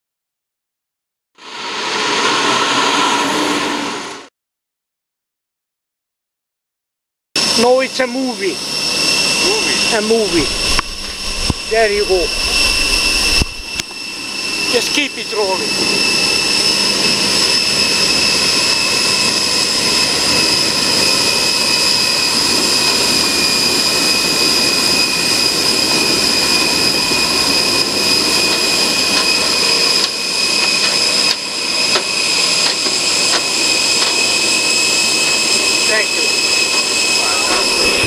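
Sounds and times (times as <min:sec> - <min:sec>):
jet turbines whining: 0:01.4 - 0:04.3, 0:07.4 - 0:38.0
loud rushing noise: 0:01.4 - 0:04.3, 0:09.4 - 0:15.0.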